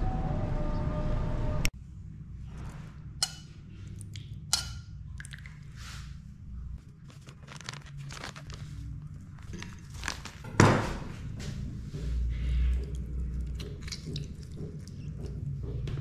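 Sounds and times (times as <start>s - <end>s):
low steady hum: 0.0s - 16.0s
metal spoon clinking on ceramic bowl: 4.5s - 4.8s.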